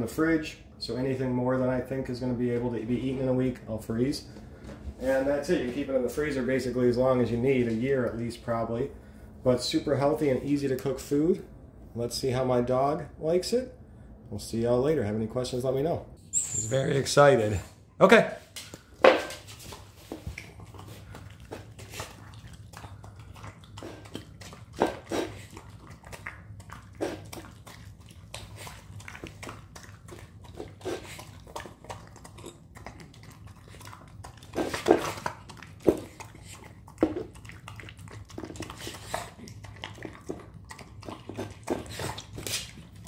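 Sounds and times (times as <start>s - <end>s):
dog chewing and smacking: 18.7s - 43.0s
teeth and food clicking on bowl: 20.4s - 43.0s.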